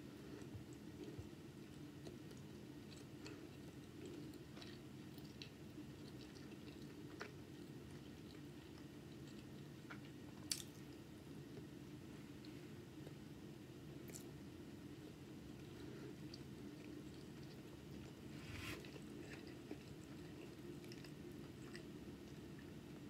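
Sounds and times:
low steady hum: 0.0s - 23.0s
person chewing: 0.3s - 10.8s.

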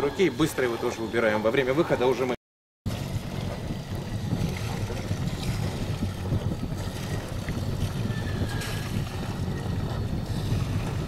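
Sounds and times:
wind buffeting microphone: 0.0s - 11.0s
steady low rumble: 2.9s - 11.0s.

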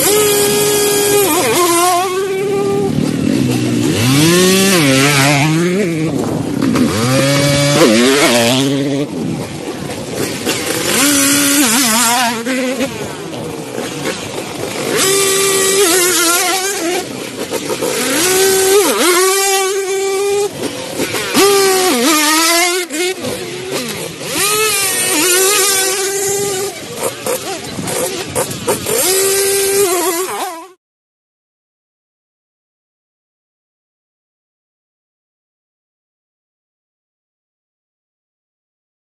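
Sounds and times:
dirt bike engines revving: 0.0s - 30.8s.

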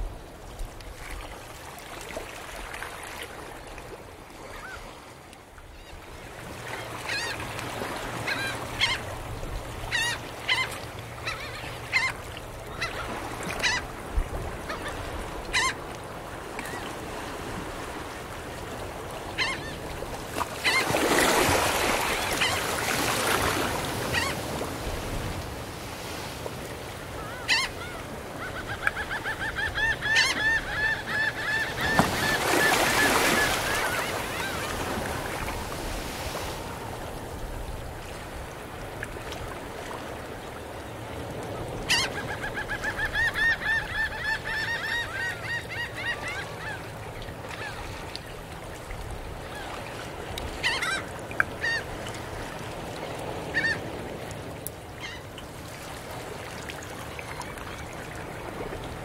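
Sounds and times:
surf washing up a beach: 0.0s - 59.0s
gulls calling: 6.7s - 9.2s, 9.8s - 13.9s, 19.3s - 25.1s, 26.9s - 37.7s, 41.7s - 47.9s, 50.6s - 52.0s, 53.4s - 53.9s.

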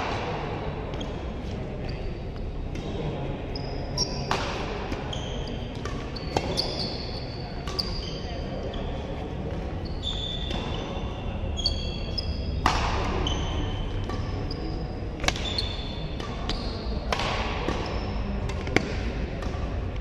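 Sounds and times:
shoes squeaking on court: 0.9s - 19.8s
rackets hitting shuttlecock: 4.0s - 8.0s, 11.8s - 20.0s.

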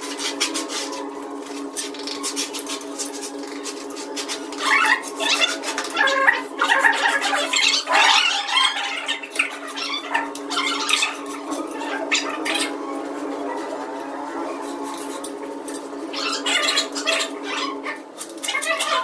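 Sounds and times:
tool scraping mortar: 0.0s - 8.1s
steady multi-tone hum: 0.0s - 19.0s.

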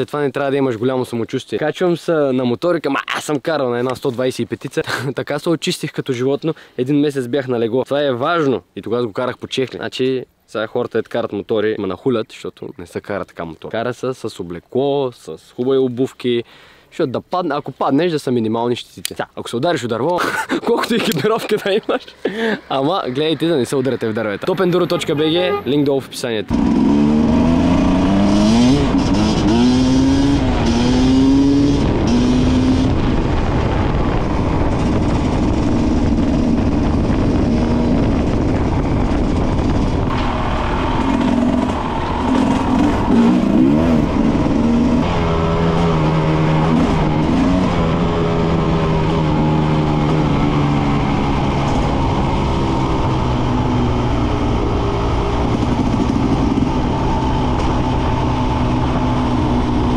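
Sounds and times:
motorcycle engine revving: 26.5s - 59.9s.

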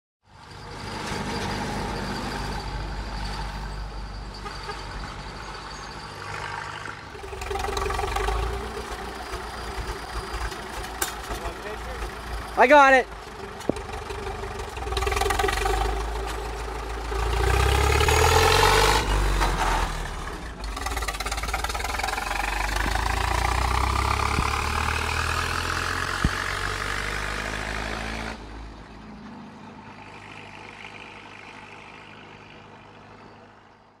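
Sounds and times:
tractor engine accelerating: 0.3s - 34.0s.

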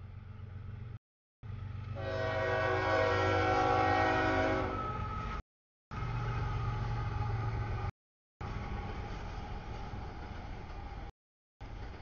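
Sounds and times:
diesel engine rumble: 0.0s - 2.2s, 5.9s - 12.0s
locomotive air horn blast: 2.0s - 5.0s.

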